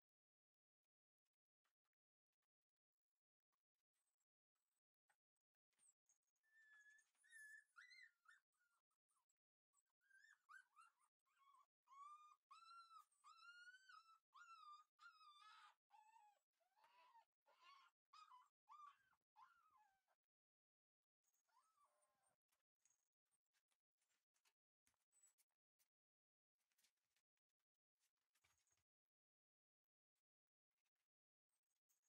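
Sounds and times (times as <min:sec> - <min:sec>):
puppy whimpering: 0:06.5 - 0:08.4, 0:09.8 - 0:20.0.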